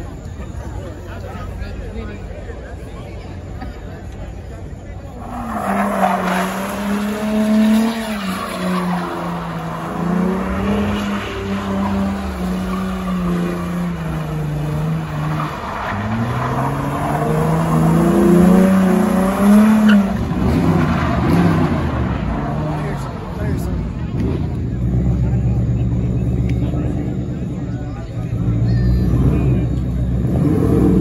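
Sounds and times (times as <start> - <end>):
car engine revving high: 5.2 - 23.4.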